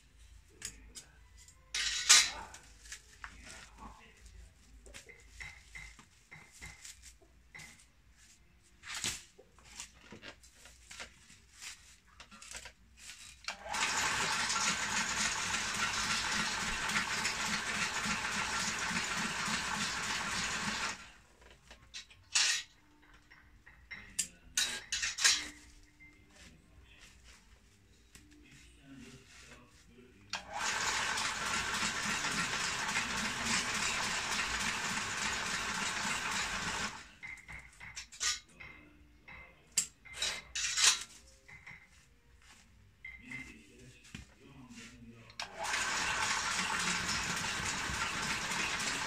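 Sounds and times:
stitching machine pulsing clatter: 13.5s - 21.1s, 30.4s - 37.1s, 45.4s - 49.0s.

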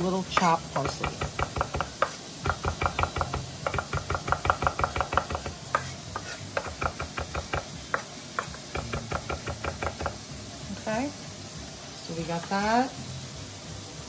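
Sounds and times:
knife chopping on wooden board: 0.3s - 10.2s.

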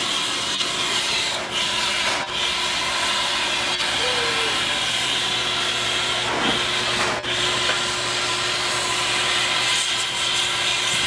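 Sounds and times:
steam hissing: 0.0s - 11.0s.

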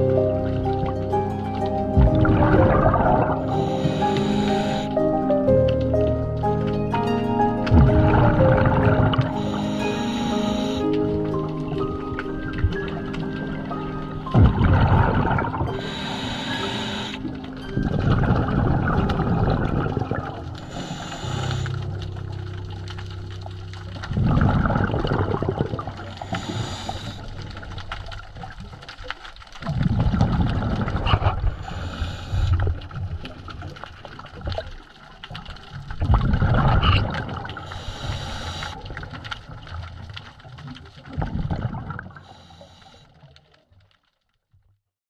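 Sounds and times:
bubbling exhaust underwater: 0.0s - 43.7s
regulator inhale hiss: 3.4s - 5.0s, 9.3s - 10.9s, 15.7s - 17.3s, 20.6s - 21.8s, 26.2s - 27.5s, 31.6s - 32.8s, 37.6s - 38.9s, 42.2s - 43.2s.

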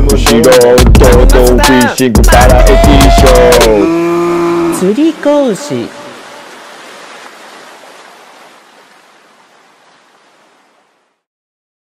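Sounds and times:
ocean surf breaking: 3.8s - 11.2s.

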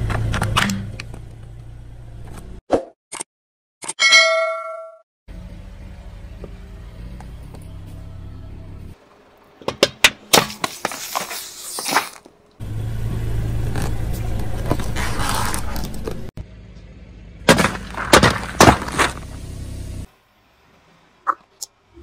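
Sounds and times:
soda cans crumpling under a tyre: 10.6s - 12.3s.

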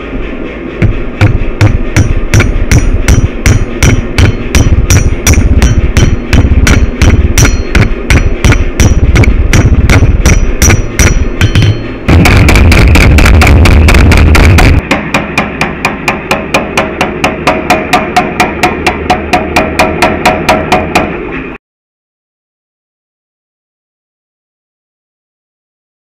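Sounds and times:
power hammer blows: 0.6s - 21.6s
hammer striking steel on anvil: 0.8s - 21.6s.

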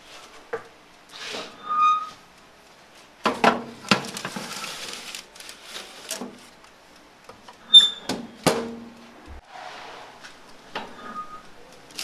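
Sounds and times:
baking paper rustling: 3.7s - 6.6s
metal tray scraping on wire rack: 9.4s - 11.5s.

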